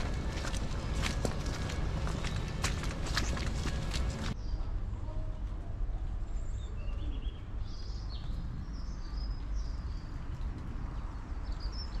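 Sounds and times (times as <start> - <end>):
steady low rumble: 0.0 - 11.9
songbirds chirping: 0.0 - 12.0.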